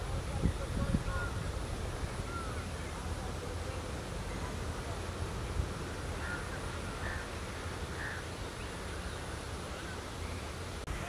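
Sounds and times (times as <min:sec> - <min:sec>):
low rumble and hiss: 0:00.0 - 0:11.0.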